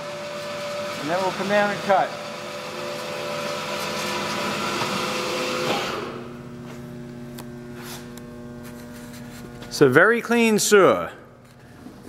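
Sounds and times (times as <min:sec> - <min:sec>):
bandsaw whirring: 0:00.0 - 0:06.4.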